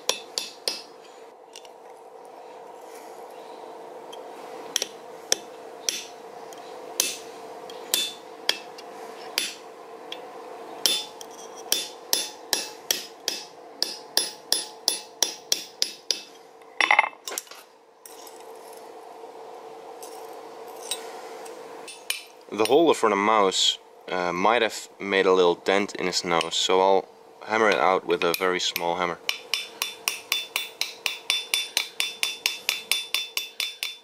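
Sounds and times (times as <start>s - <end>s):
hammer tapping chisel on metal: 0.0s - 0.9s, 10.8s - 17.1s, 27.7s - 34.0s
steady hum: 0.0s - 34.0s.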